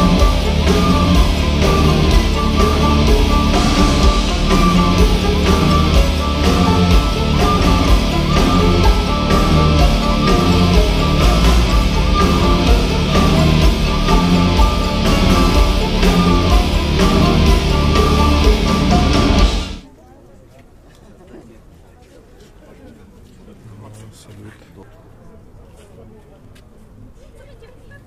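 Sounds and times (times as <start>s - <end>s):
metal band playing live: 0.0s - 19.8s.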